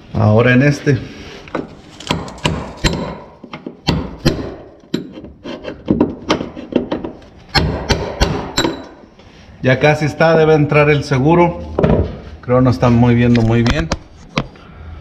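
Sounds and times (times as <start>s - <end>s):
hammer striking chisel on metal: 2.0s - 5.3s, 6.3s - 9.0s.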